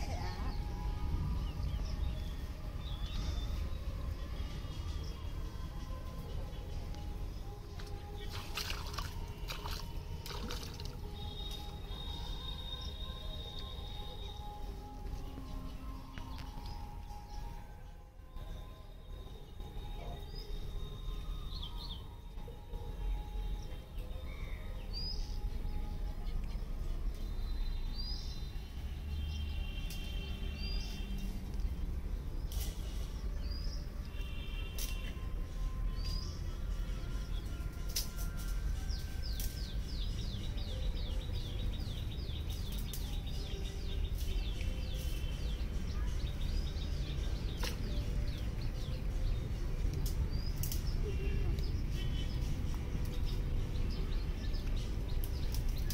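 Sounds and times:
small birds chirping: 23.5s - 55.9s.

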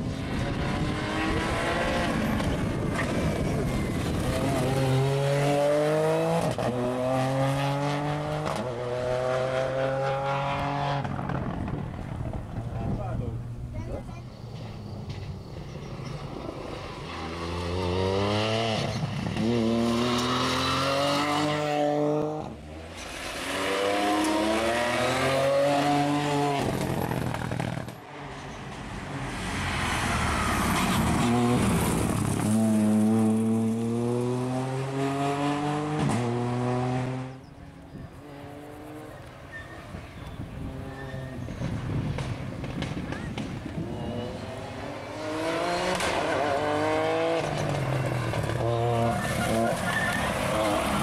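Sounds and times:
rally car engine accelerating: 0.0s - 12.7s, 14.6s - 27.9s, 29.8s - 37.5s, 43.7s - 51.0s.

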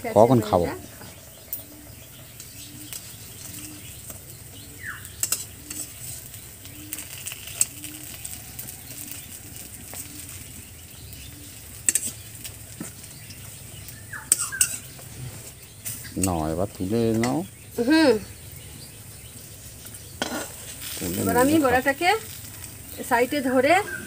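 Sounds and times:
fritters sizzling in oil: 0.0s - 24.0s
metal spatula scraping pan: 5.2s - 6.2s, 14.3s - 15.4s, 20.2s - 21.0s.

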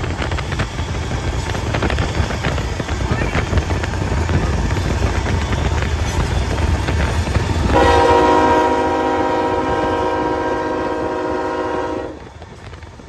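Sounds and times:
locomotive air horn blast: 7.7s - 12.2s.

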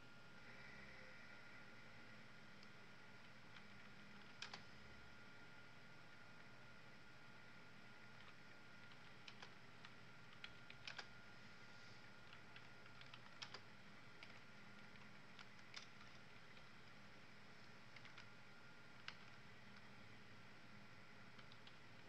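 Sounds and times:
faint high-pitched electrical whine: 0.0s - 22.0s
keyboard keys clicking: 3.5s - 4.6s, 8.2s - 11.1s, 12.2s - 13.6s, 14.2s - 16.8s, 17.9s - 18.3s, 19.0s - 19.8s, 21.3s - 21.8s.

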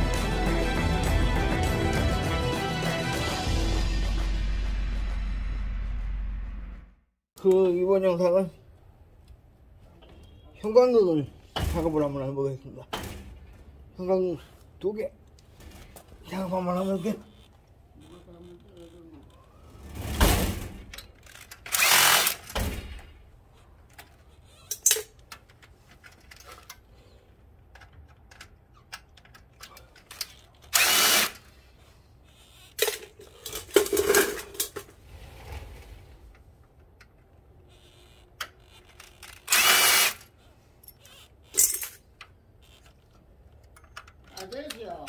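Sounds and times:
cordless drill running: 30.8s - 31.4s, 39.4s - 40.2s.

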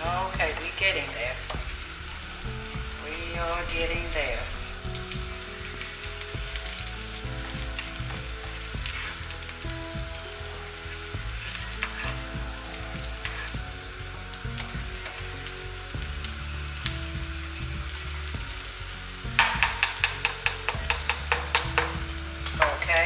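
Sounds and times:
potatoes sizzling in a pan: 0.0s - 23.0s
utensil clicking against pan: 19.4s - 22.9s.

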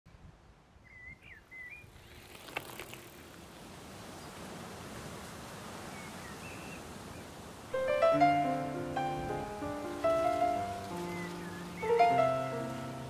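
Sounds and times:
bird chirps: 0.8s - 2.0s, 10.2s - 12.8s.

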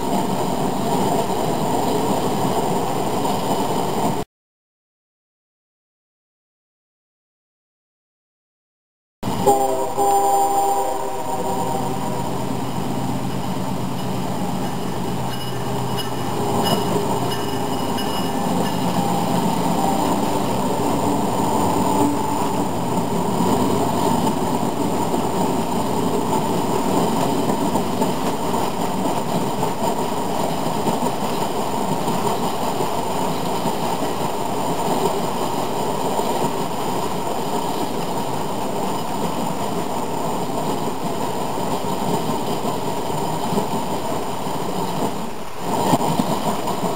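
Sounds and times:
model locomotive sound system: 9.3s - 24.7s.

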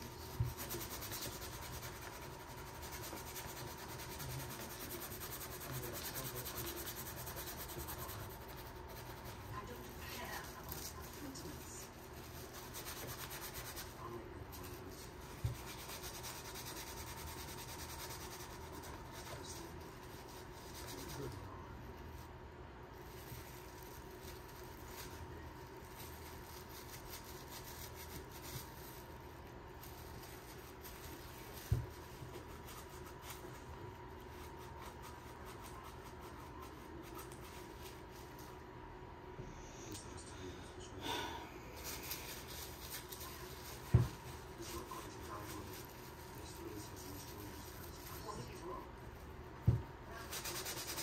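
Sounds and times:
paper towel rubbing plastic: 0.0s - 38.7s, 41.8s - 51.0s.

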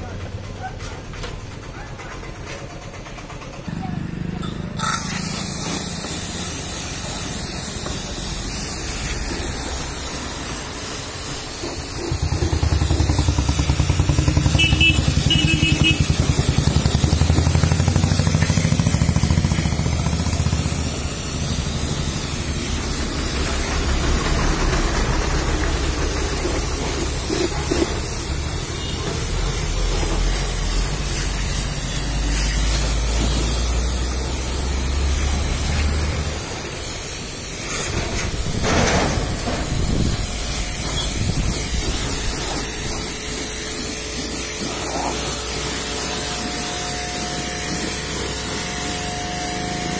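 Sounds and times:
pressure washer jet hissing: 4.4s - 49.9s.

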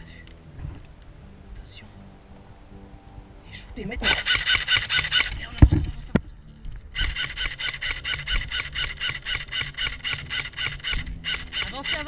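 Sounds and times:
heavy thump: 0.6s - 1.0s
toy rifle rapid firing: 7.0s - 12.0s.

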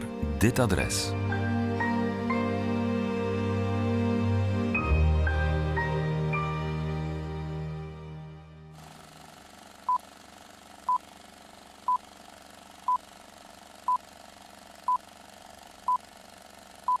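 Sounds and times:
soft background music: 0.0s - 8.8s.

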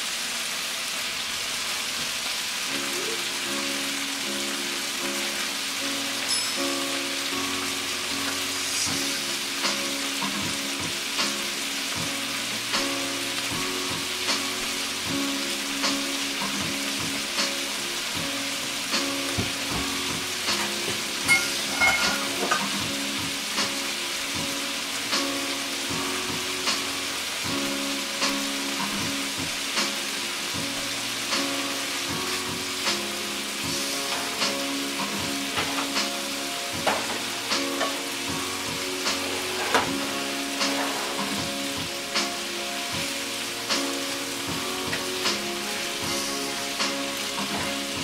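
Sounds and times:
beans and onions sizzling in oil: 0.0s - 48.0s
background music with slow beat: 2.1s - 48.0s.

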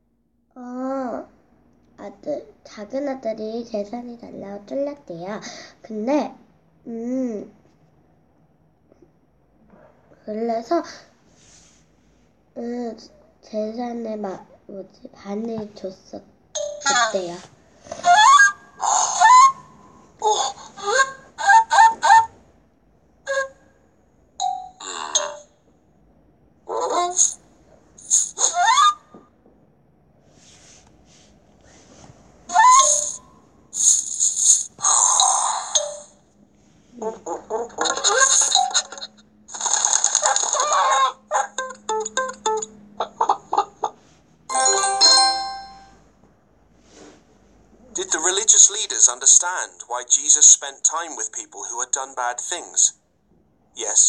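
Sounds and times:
cartoon gibberish voices: 20.2s - 22.4s, 26.7s - 27.4s, 28.0s - 29.0s, 32.5s - 33.2s, 33.8s - 36.1s, 37.0s - 39.2s, 40.2s - 41.9s
bright chime: 44.5s - 46.0s.

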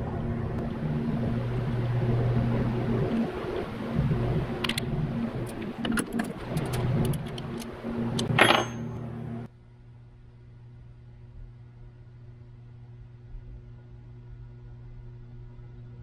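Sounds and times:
steady hum: 0.0s - 16.0s
ringing metal clink: 8.3s - 9.0s.

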